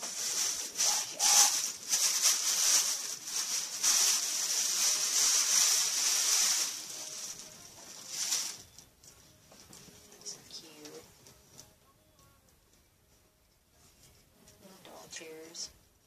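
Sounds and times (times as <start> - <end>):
wrapping rustling and crinkling: 0.0 - 11.7.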